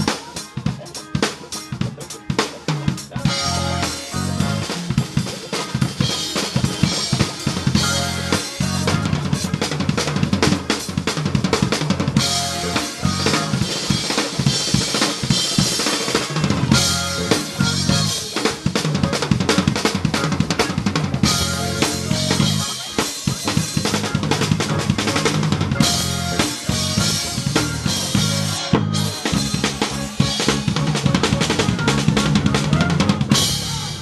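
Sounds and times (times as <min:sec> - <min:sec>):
bass drum: 0:02.8 - 0:15.7, 0:16.3 - 0:34.0
band sustained notes: 0:06.0 - 0:10.4, 0:12.1 - 0:14.8, 0:16.4 - 0:34.0.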